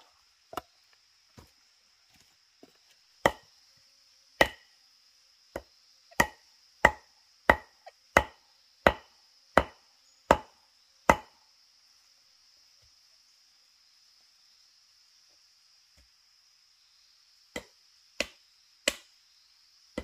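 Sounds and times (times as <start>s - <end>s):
blade chopping into wood: 3.2s - 3.5s, 4.4s - 4.6s, 11.1s - 11.3s, 17.6s - 19.1s.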